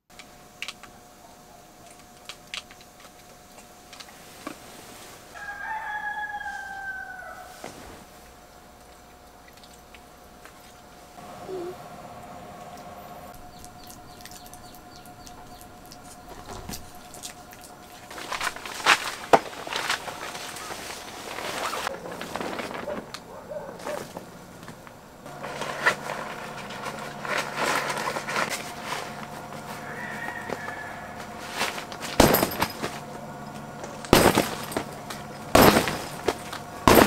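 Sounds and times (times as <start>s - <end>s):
faint steady hum: 0.1s - 37.0s
fabric rustling and crinkling: 16.4s - 23.2s, 25.3s - 30.4s, 31.2s - 37.0s.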